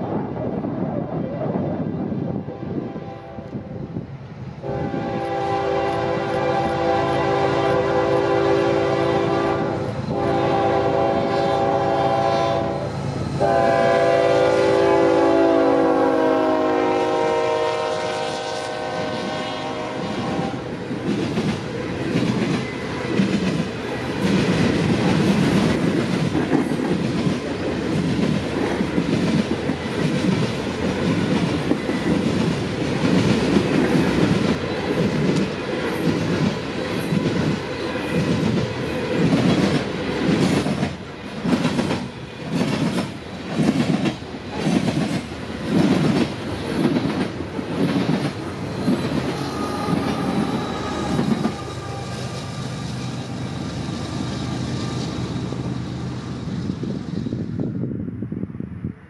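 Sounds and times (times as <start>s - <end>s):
freight train rolling past: 0.0s - 59.0s
steel wheels clacking over rail joints: 20.9s - 56.0s.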